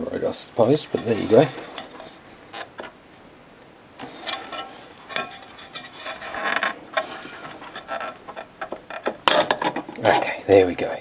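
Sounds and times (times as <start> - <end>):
metal platter scraping and clicking: 0.8 - 2.9, 4.0 - 10.2.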